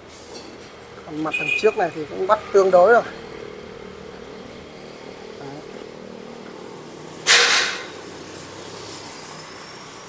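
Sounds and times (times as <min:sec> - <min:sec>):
traffic din: 0:00.0 - 0:10.0
sudden loud hiss: 0:07.1 - 0:10.0.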